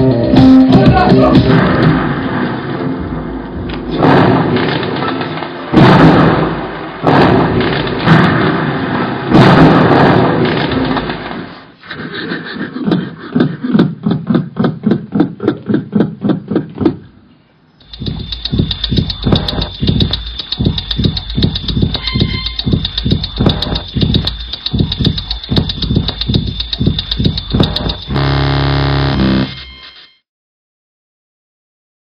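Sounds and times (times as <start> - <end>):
percussive soundtrack: 0.0 - 2.3, 3.0 - 8.6, 17.8 - 29.6
loud percussive hits: 0.4 - 8.7, 9.3 - 11.3, 17.8 - 28.6
fast sharp pulses: 17.8 - 29.9.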